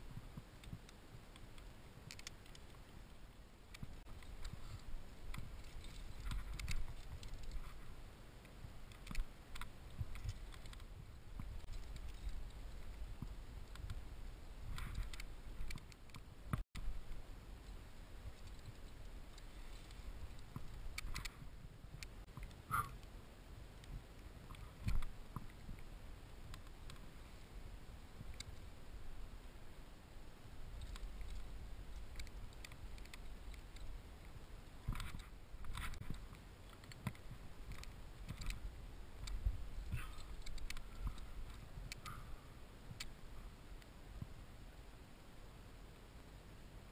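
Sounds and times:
wind rumbling on microphone: 0.0s - 44.9s
climber clicks and scrapes on rock: 3.7s - 8.0s, 8.8s - 14.0s, 14.7s - 16.6s, 18.2s - 23.0s, 30.8s - 34.0s, 34.7s - 38.6s, 39.2s - 42.3s
wind rumble on microphone: 23.6s - 44.6s.

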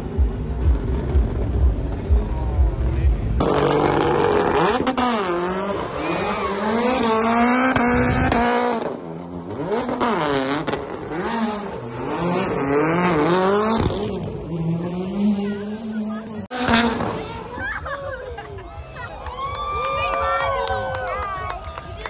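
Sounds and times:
car engine revving: 0.0s - 17.6s.

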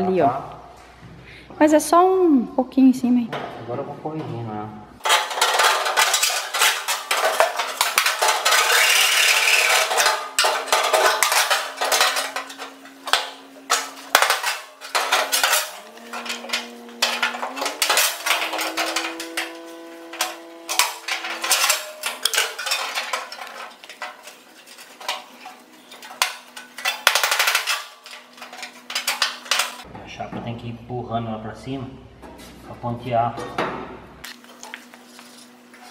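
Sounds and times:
sheet metal clanking and rattling: 5.0s - 29.9s.

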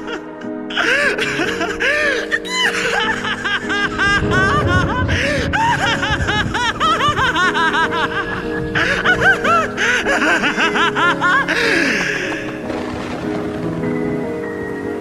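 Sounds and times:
man laughing: 0.0s - 12.7s
instrumental music: 0.0s - 15.0s.

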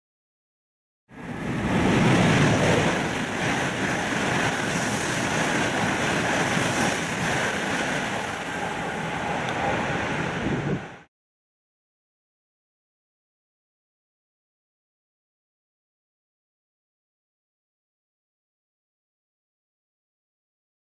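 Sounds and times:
bullet train passing at speed: 1.1s - 11.1s.

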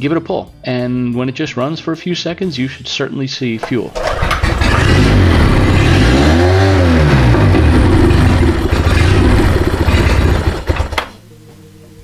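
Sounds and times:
outboard motor running: 4.1s - 6.2s, 7.1s - 11.0s.

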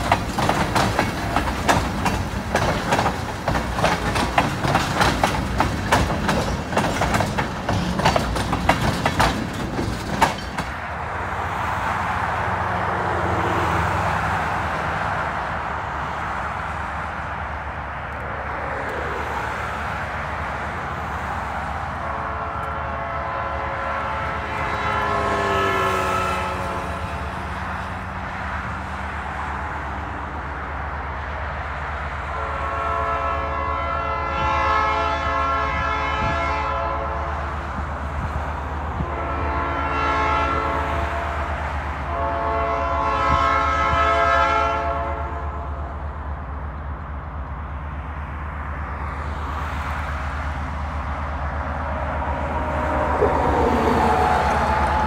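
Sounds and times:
tank cars clattering over rails: 0.0s - 10.8s
locomotive air horn: 22.0s - 27.4s, 32.3s - 37.6s, 38.9s - 46.0s, 51.8s - 55.0s.

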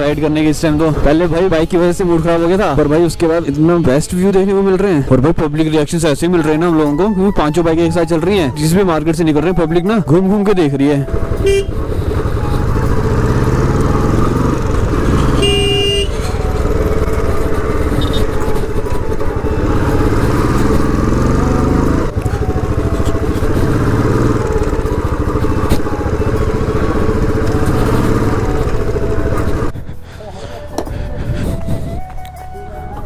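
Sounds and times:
motorcycle engine revving through gears: 11.0s - 29.7s
horn: 11.4s - 11.9s, 15.0s - 16.2s.

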